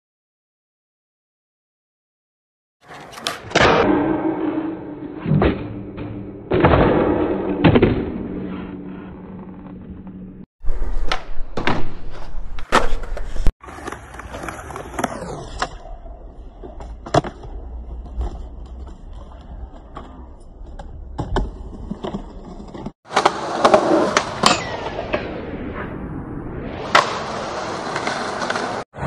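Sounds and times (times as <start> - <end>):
skateboard grinding on metal rail: 2.8 - 9.6
skateboard wheels rolling on concrete: 8.4 - 29.0.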